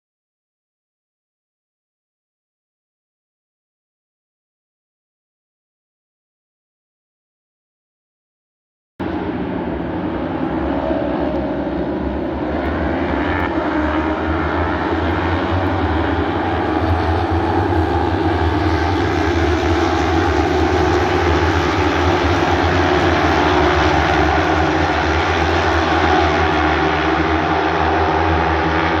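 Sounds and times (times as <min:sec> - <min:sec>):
racing motorcycles at full throttle: 0:09.0 - 0:29.0.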